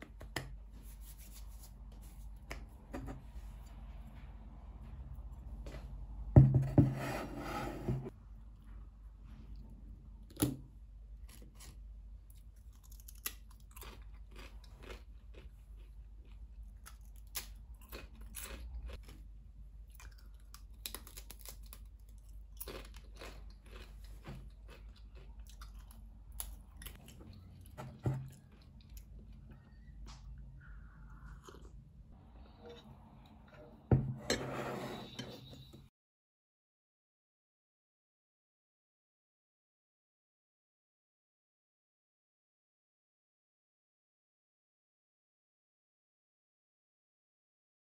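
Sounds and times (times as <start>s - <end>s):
chips crunching: 12.6s - 19.2s, 20.0s - 27.3s.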